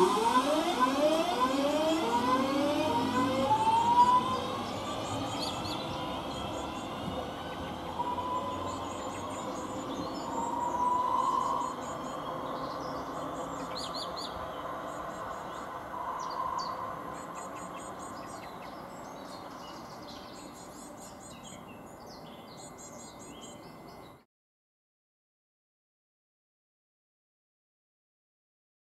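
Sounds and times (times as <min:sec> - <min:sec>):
electric train whining: 0:00.0 - 0:21.6
birds chirping and singing: 0:00.0 - 0:24.2.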